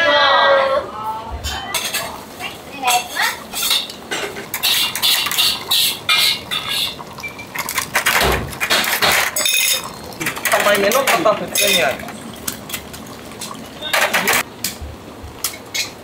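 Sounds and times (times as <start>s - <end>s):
utensils and bowls clinking: 1.5s - 2.2s, 2.8s - 14.5s.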